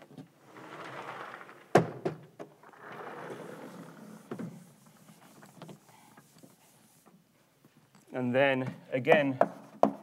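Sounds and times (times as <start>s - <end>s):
eraser rubbing on chalkboard: 3.8s - 7.0s.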